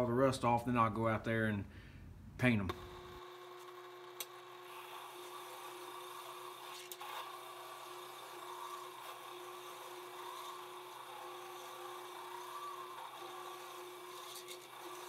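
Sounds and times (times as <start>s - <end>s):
drill press motor hum: 2.7s - 15.0s
wire brush rasping on metal: 6.6s - 15.0s.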